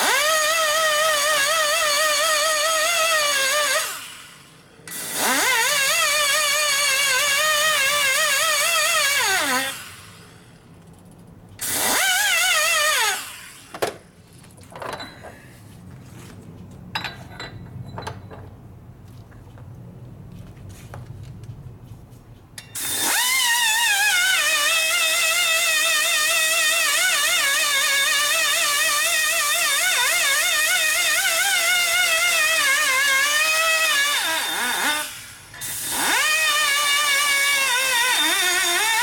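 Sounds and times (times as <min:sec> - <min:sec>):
die grinder whining: 0:00.0 - 0:10.3, 0:11.6 - 0:13.7, 0:22.8 - 0:39.0.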